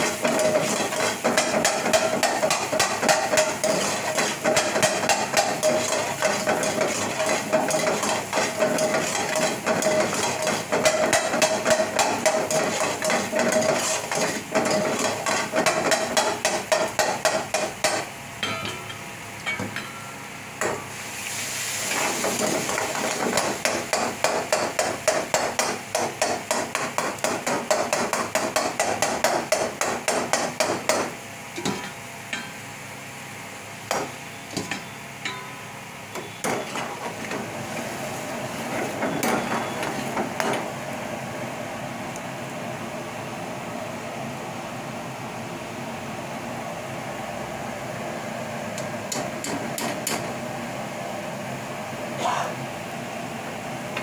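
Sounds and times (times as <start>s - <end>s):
food sizzling: 0.0s - 29.0s, 36.4s - 41.2s
metal ladle clanging in wok: 18.4s - 20.8s, 34.6s - 36.8s.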